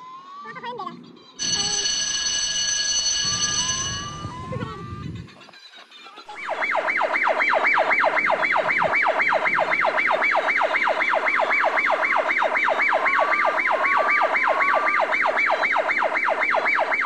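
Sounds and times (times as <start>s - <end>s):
electronic toy siren yelping: 1.4s - 5.4s, 6.3s - 17.0s.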